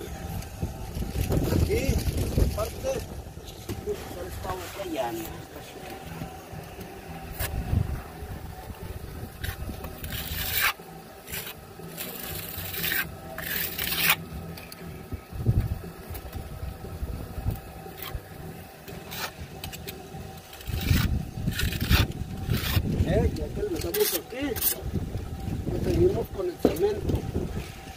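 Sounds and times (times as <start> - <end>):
trowel scraping wet mortar: 9.4 - 14.2, 20.5 - 22.9, 23.7 - 24.8.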